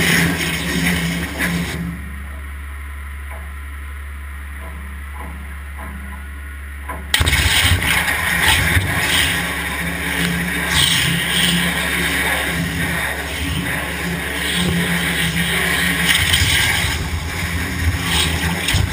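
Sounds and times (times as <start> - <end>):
machine low hum: 0.0 - 18.9
water jet loud hiss: 7.2 - 18.9.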